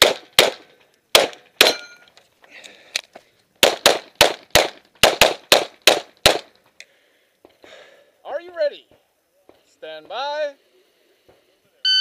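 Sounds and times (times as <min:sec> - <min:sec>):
pistol shots: 0:00.0 - 0:01.8, 0:03.6 - 0:06.5.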